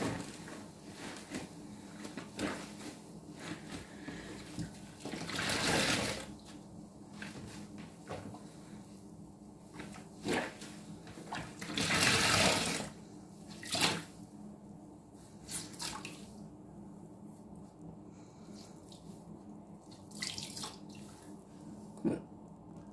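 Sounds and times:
sponge squelching water: 0:09.8 - 0:10.6.

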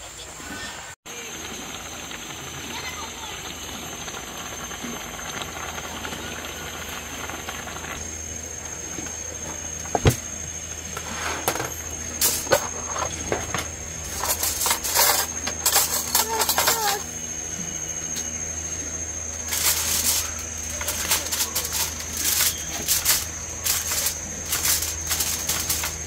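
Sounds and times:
thin high tone: 0:10.8 - 0:26.0
foil crinkling: 0:19.3 - 0:26.0.

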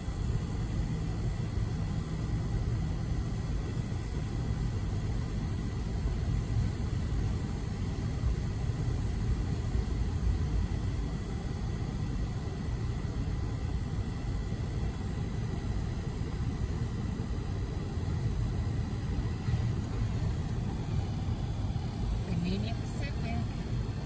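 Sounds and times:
muffled freight train rumble: 0:18.7 - 0:24.0.

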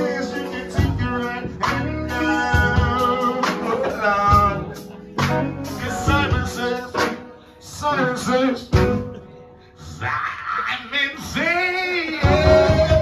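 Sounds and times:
accompaniment with slow beat: 0:00.0 - 0:09.5, 0:12.1 - 0:13.0
man singing into a microphone: 0:00.0 - 0:13.0.

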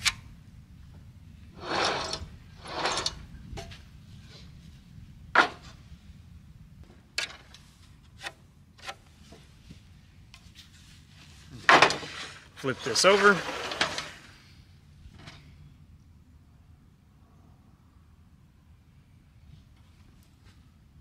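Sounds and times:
wooden board scraping over board: 0:11.6 - 0:14.4.

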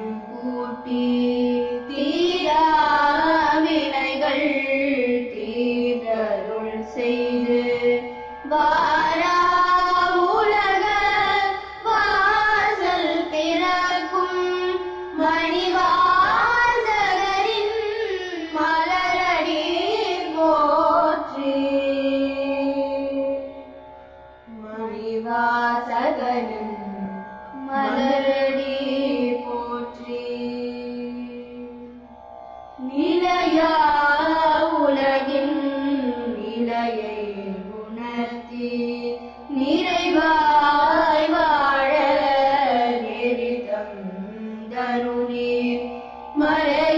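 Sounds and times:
person singing devotional hymn: 0:27.6 - 0:29.8.

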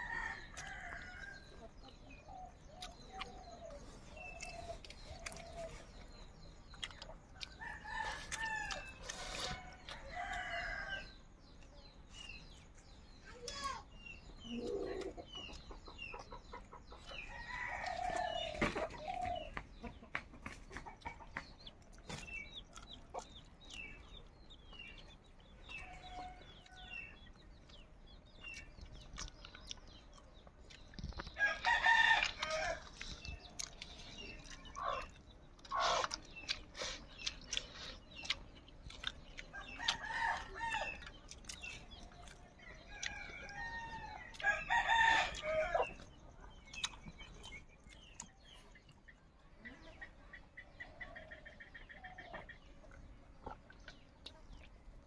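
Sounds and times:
chickens clucking: 0:00.0 - 0:55.0
small birds chirping: 0:00.0 - 0:55.0
rooster crowing: 0:43.1 - 0:45.9.

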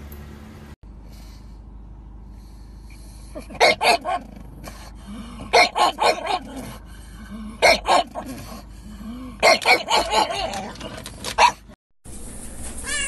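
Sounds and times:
dog barking sharply: 0:03.6 - 0:04.2, 0:05.6 - 0:06.5, 0:07.6 - 0:08.2, 0:09.4 - 0:10.6, 0:11.4 - 0:11.6.

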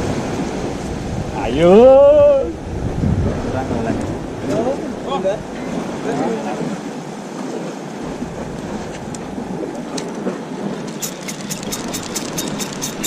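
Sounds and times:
sea noise: 0:00.0 - 0:13.0
wind: 0:00.0 - 0:13.0
light rapid ticks: 0:11.0 - 0:13.0.

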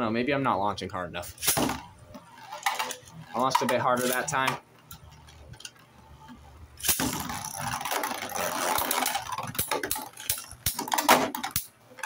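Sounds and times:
spinning tops clacking together: 0:01.4 - 0:05.8, 0:06.8 - 0:11.7
spinning tops scraping on plastic: 0:01.4 - 0:11.7.

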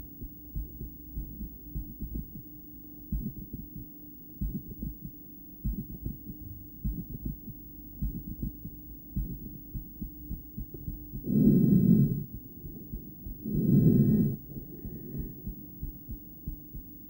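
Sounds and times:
heartbeat through stethoscope: 0:00.0 - 0:17.0.

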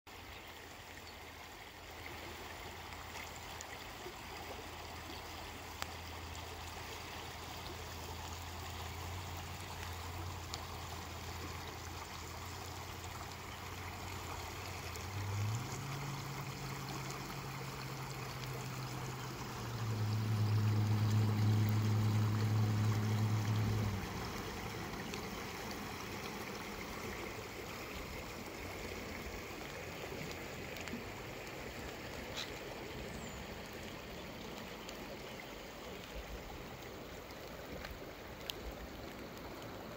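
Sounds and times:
river flowing over rocks: 0:00.1 - 0:39.9
low steady hum: 0:08.4 - 0:36.5.

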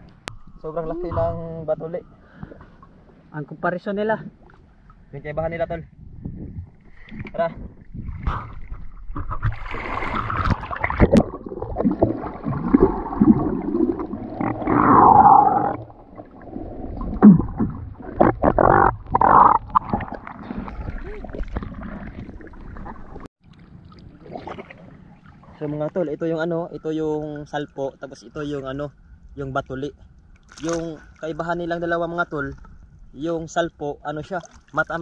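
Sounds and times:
seawater splashing and bubbling: 0:06.6 - 0:26.4.

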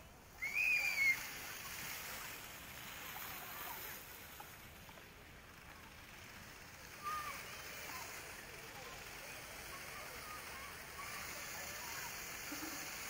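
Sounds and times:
fountain jets splashing: 0:00.0 - 0:13.0
brief high squeal: 0:00.4 - 0:01.3.

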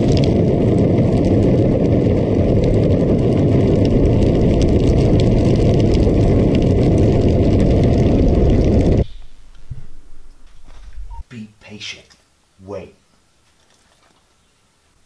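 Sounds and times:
trike rolling over asphalt: 0:00.0 - 0:11.2
wind buffeting microphone: 0:00.0 - 0:11.2.

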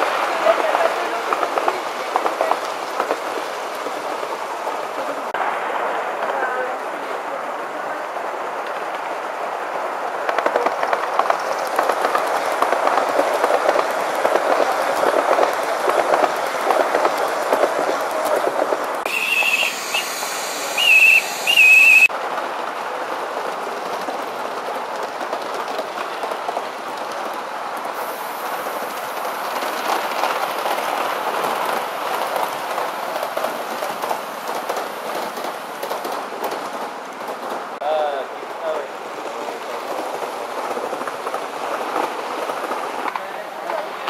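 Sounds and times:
model train wheels rattling on rail: 0:10.3 - 0:44.0
model locomotive high whistle: 0:19.1 - 0:22.1.

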